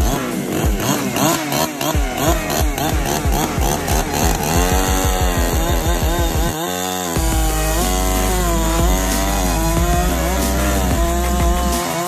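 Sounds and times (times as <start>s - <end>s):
chainsaw at high throttle: 0.0s - 12.0s
chainsaw cutting log: 0.0s - 12.0s.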